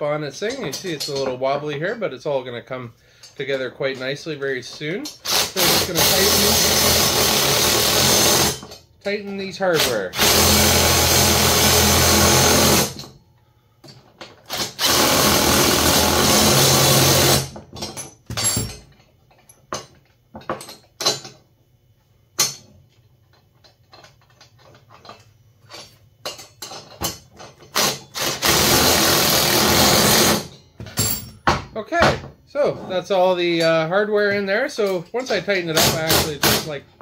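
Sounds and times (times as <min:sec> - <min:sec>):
metal parts clinking: 0:17.7 - 0:21.4, 0:22.4 - 0:28.3, 0:30.5 - 0:31.5.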